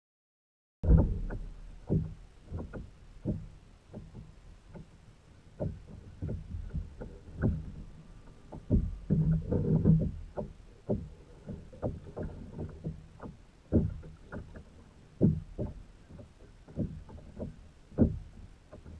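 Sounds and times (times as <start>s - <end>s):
knocks on plastic kayak: 0.9s - 4.9s, 8.5s - 18.9s.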